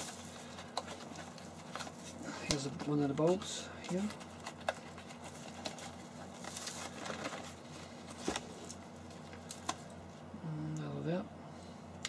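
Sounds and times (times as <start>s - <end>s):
bubble wrap rustling: 0.0s - 9.9s
steady low hum: 0.0s - 12.0s.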